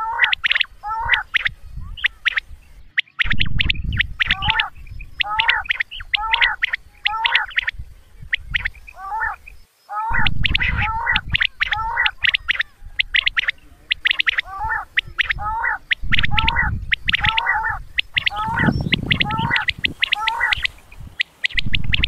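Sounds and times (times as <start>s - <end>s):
quail calls: 0.0s - 22.0s
low rumble: 16.0s - 19.9s, 21.6s - 22.0s.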